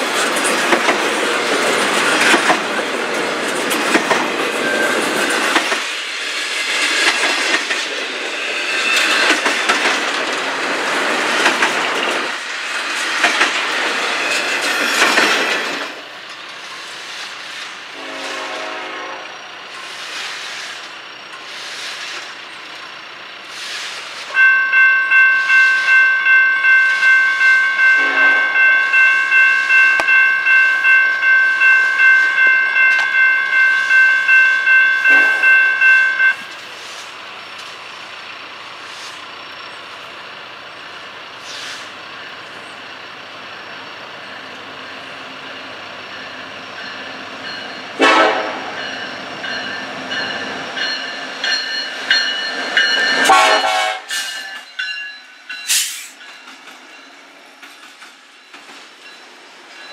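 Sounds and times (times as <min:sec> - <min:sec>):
freight train approaching: 0:00.0 - 0:59.9
train horn blast: 0:17.9 - 0:19.5, 0:28.0 - 0:28.7, 0:35.0 - 0:35.7, 0:48.0 - 0:48.9, 0:53.2 - 0:54.3
crossing bell ringing: 0:24.3 - 0:36.6, 0:44.2 - 0:59.9.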